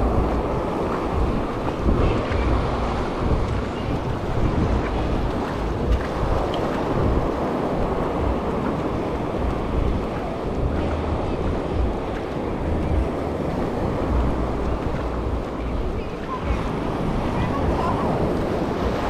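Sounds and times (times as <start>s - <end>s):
ocean surf breaking on shore: 0.0s - 19.0s
wind buffeting microphone: 0.0s - 19.0s.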